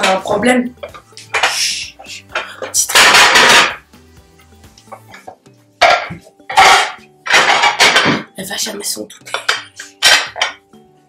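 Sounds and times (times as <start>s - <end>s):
ceramic plates clattering: 0.0s - 1.6s, 2.3s - 3.9s, 4.9s - 8.4s, 9.3s - 10.6s
faint background music: 0.0s - 11.0s.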